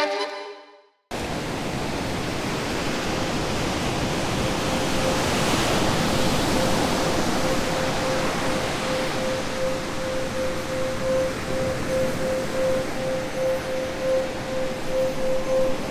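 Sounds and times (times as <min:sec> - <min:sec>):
faint steady tone: 0:04.2 - 0:15.9.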